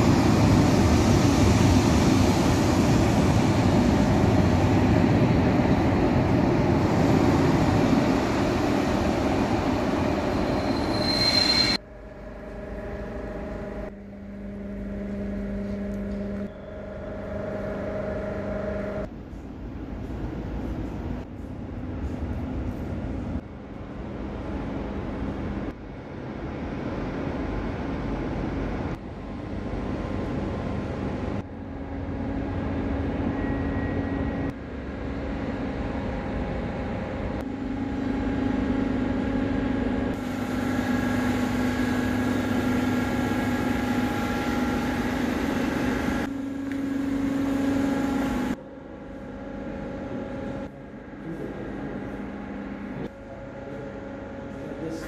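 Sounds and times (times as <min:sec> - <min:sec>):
electrical hum: 0:11.8 - 0:55.0.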